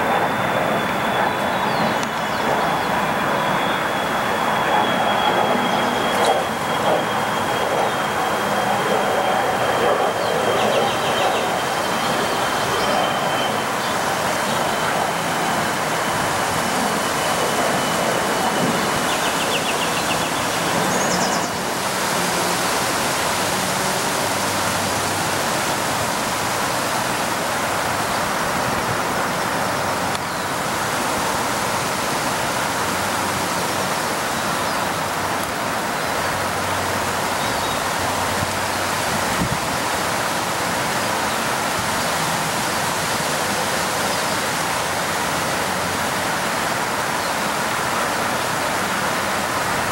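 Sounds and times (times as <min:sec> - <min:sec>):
steady rushing noise: 0:00.0 - 0:49.9
faint high whistle: 0:00.8 - 0:07.4.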